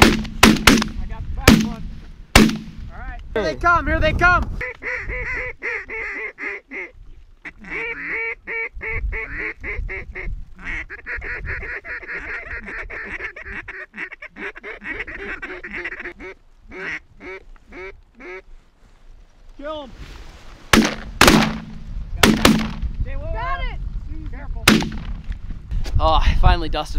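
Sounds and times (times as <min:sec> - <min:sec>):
ducks quacking: 0:04.6 - 0:18.6.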